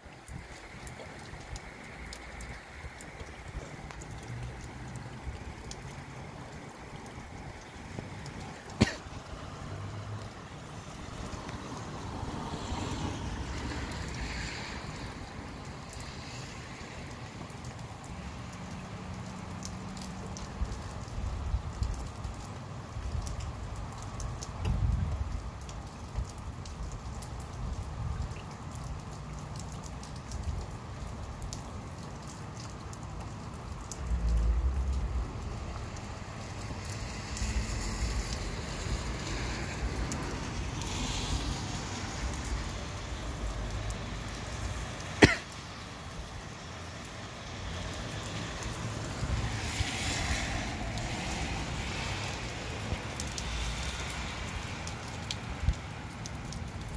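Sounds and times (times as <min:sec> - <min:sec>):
rain falling steadily: 0:00.0 - 0:56.9
wind gusts in low rumbles: 0:24.2 - 0:28.4.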